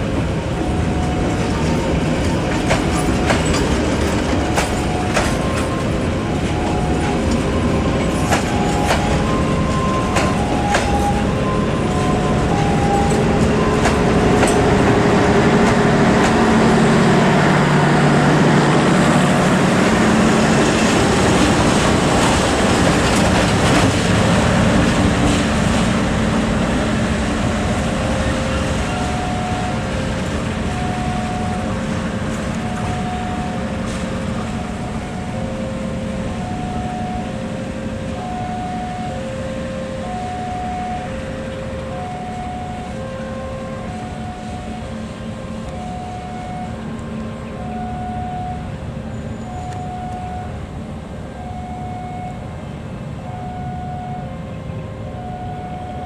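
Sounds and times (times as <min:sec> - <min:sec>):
diesel locomotive rumble: 0:00.0 - 0:56.0
level crossing two-tone alarm: 0:02.6 - 0:17.0, 0:27.6 - 0:47.0, 0:47.6 - 0:48.8, 0:49.5 - 0:50.6, 0:51.4 - 0:52.5, 0:53.2 - 0:54.5, 0:55.1 - 0:56.0.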